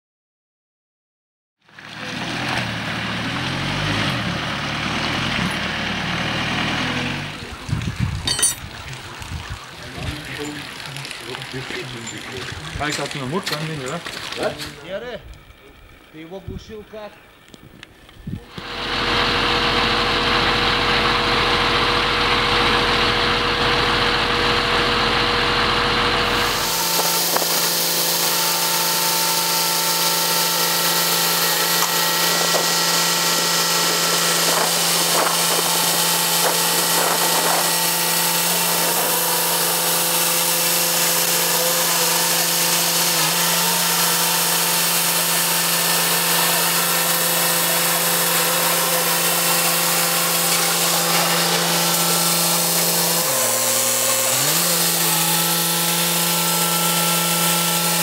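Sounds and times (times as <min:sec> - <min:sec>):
hydraulic crane hum and whine: 0:17.1 - 0:58.0.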